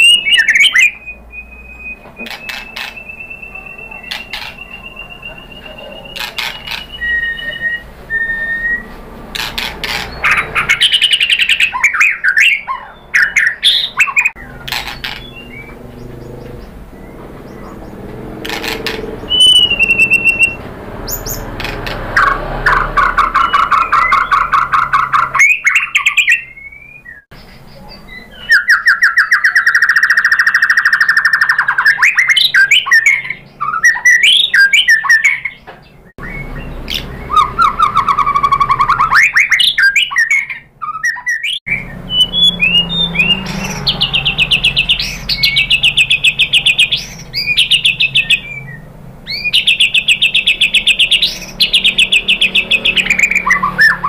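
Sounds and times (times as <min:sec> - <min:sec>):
songbird singing trilled notes: 0:00.0 - 0:54.0.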